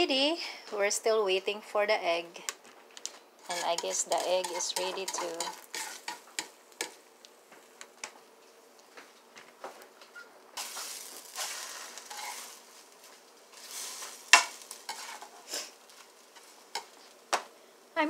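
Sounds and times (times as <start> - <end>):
egg sizzling in frying pan: 3.0 - 18.0
spatula scraping and tapping pan: 3.4 - 7.0, 9.6 - 17.5.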